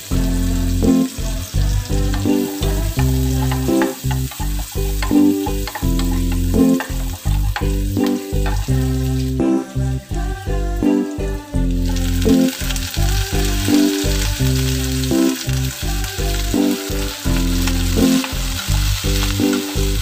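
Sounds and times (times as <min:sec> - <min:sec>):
garlic sizzling in hot oil: 0:00.0 - 0:10.2, 0:11.0 - 0:20.0
background music with bass line: 0:00.0 - 0:20.0
wooden spatula scraping wok: 0:02.0 - 0:09.4.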